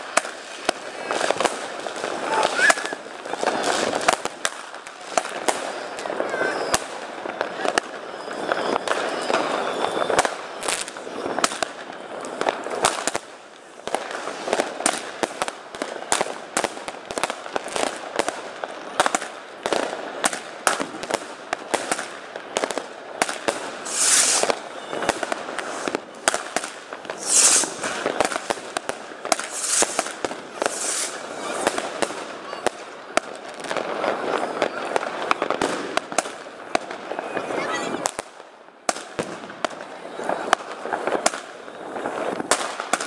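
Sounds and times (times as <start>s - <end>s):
fireworks bangs and crackles: 0.0s - 43.0s
loud hissing bursts: 23.8s - 24.5s, 27.2s - 28.0s, 29.5s - 30.0s, 30.7s - 31.2s.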